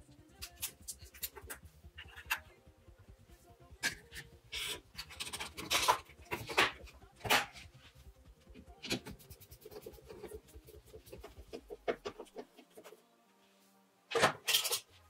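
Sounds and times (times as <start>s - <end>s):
plastic parts scraping and clicking: 3.8s - 7.7s, 14.1s - 14.9s.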